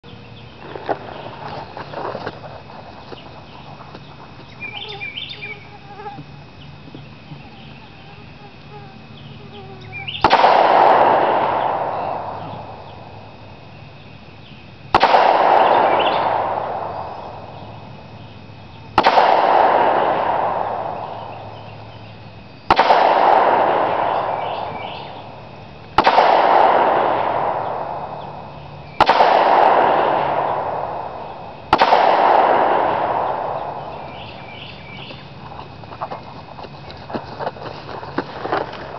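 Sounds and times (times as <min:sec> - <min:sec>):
pistol shots with echo: 0:10.1 - 0:13.6, 0:14.9 - 0:18.1, 0:18.9 - 0:22.1, 0:22.7 - 0:35.2.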